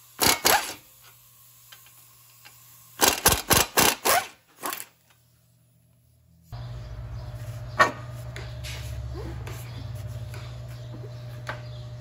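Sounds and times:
pneumatic air hammer rattling: 0.0 - 5.2.

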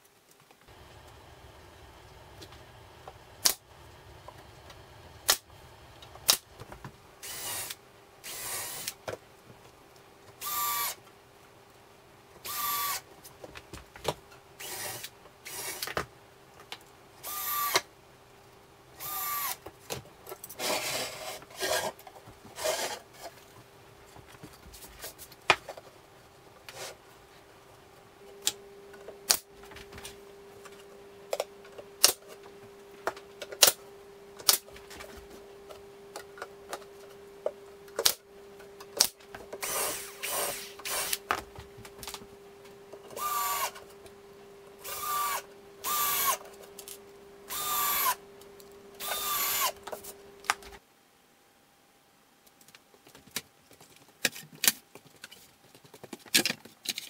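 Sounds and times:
steady hum: 0.6 - 52.3
cordless drill driving screws: 7.2 - 9.0, 10.4 - 11.0, 12.4 - 13.0, 14.6 - 15.9, 17.2 - 17.8, 19.0 - 19.6, 39.6 - 41.2, 43.2 - 43.8, 44.8 - 46.4, 47.5 - 48.2, 49.0 - 49.8.

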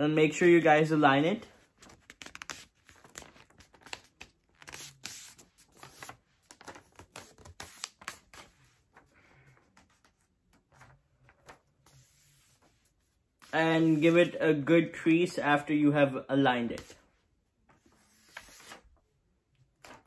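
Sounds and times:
paper rustling and crinkling: 1.6 - 14.2, 17.7 - 19.0, 19.8 - 20.0.

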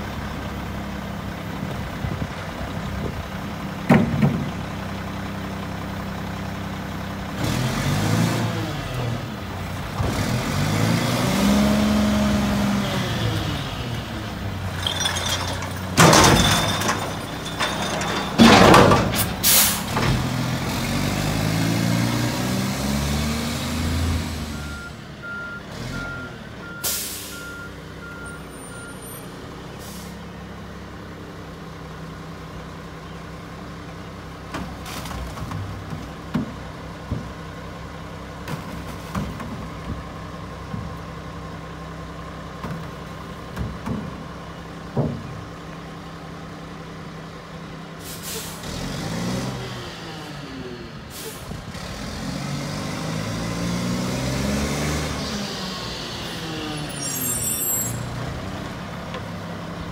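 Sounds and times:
garbage truck engine revving: 7.0 - 24.8, 46.6 - 59.9
reversing beeps: 24.5 - 29.3
air brake hiss: 26.8 - 27.4, 29.8 - 30.2, 48.0 - 48.6, 51.1 - 51.5.

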